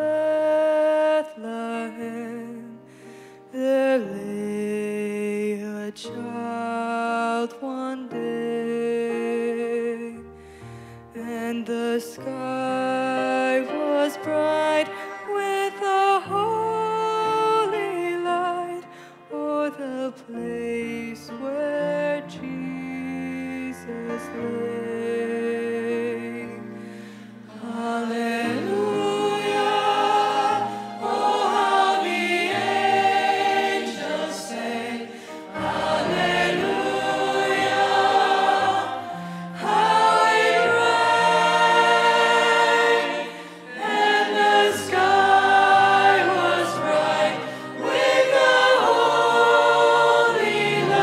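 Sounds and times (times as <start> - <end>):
choir singing: 11.2 - 18.8, 27.4 - 51.0.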